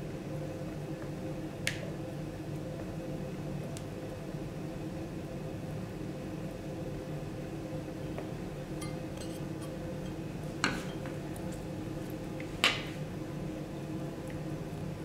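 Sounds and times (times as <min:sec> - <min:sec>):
metal kitchen tools clinking: 0:08.8 - 0:09.8.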